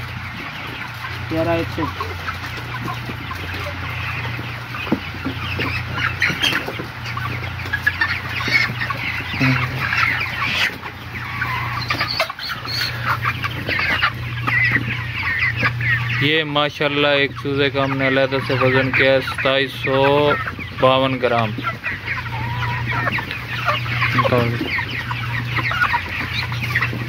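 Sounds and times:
chickens clucking and chirping: 0:00.0 - 0:27.0
steady low hum: 0:06.8 - 0:19.2.

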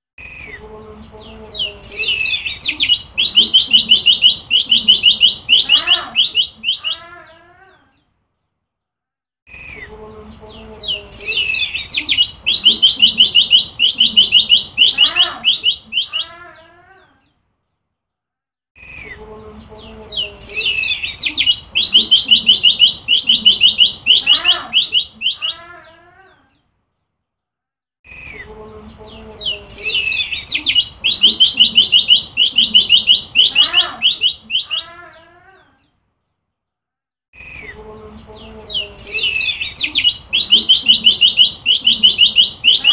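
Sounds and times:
bird singing fast chirps: 0:01.5 - 0:07.0, 0:10.8 - 0:16.3, 0:20.1 - 0:25.6, 0:29.4 - 0:34.9, 0:38.6 - 0:42.9.

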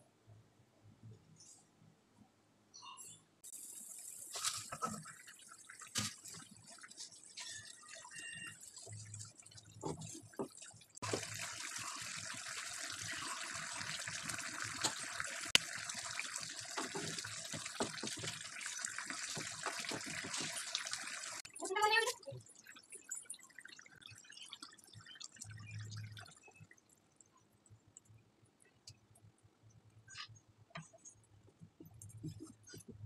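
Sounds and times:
curry simmering with hiss: 0:03.5 - 0:21.4.

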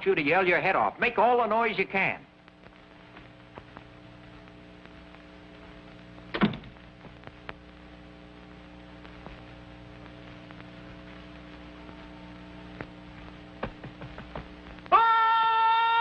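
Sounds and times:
film soundtrack hum and clicks: 0:00.1 - 0:16.0
door shutting: 0:06.3 - 0:06.8.

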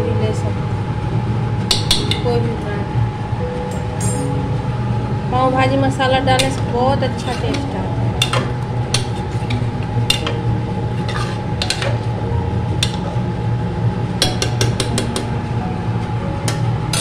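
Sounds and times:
steady low hum: 0:00.0 - 0:17.0
metal spoon scraping a pot: 0:07.2 - 0:12.0.

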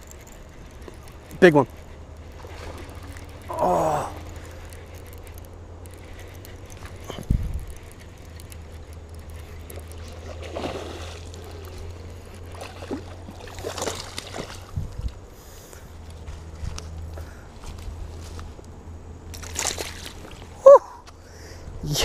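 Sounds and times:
fish splashing at water surface: 0:12.4 - 0:14.7, 0:19.4 - 0:20.4.

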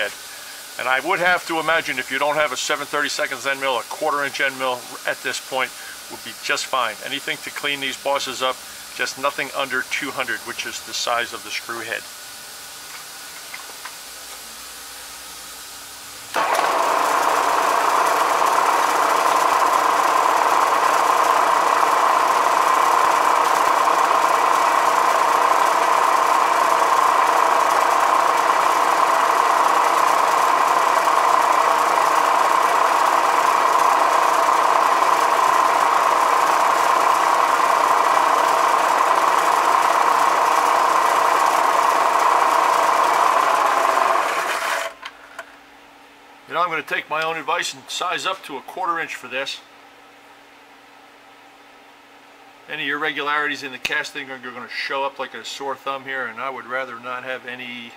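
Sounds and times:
milling machine whine: 0:16.3 - 0:45.0.

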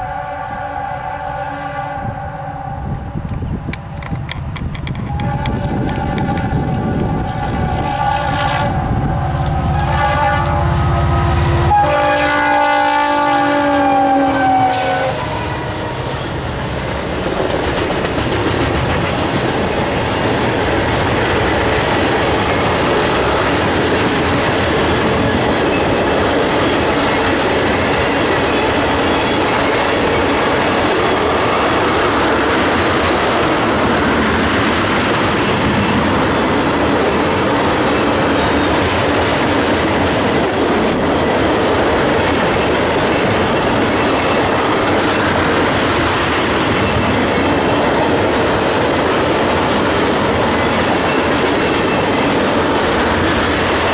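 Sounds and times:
locomotive air horn chord: 0:00.0 - 0:03.0, 0:05.1 - 0:16.4
tank cars rolling clickety-clack: 0:17.0 - 0:53.9.

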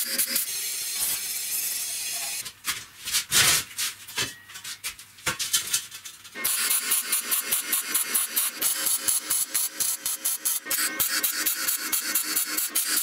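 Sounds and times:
welding arc crackling: 0:00.0 - 0:02.4.

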